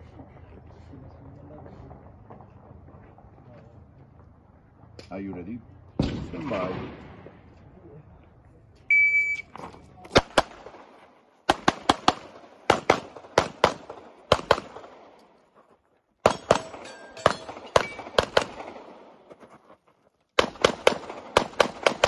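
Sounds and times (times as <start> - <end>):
handgun shots: 16.2 - 18.8.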